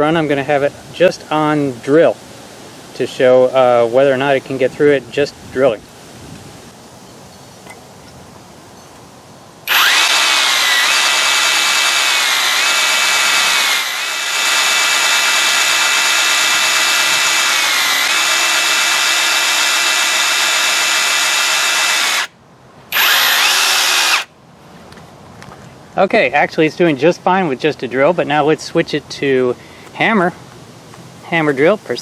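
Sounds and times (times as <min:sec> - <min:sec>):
power drill motor whine: 0:09.7 - 0:24.3.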